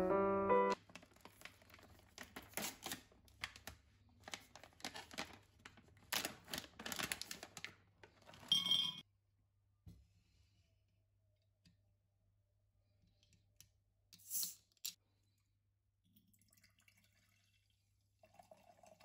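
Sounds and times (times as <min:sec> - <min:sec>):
wrapper tearing and crinkling: 0:00.8 - 0:08.4.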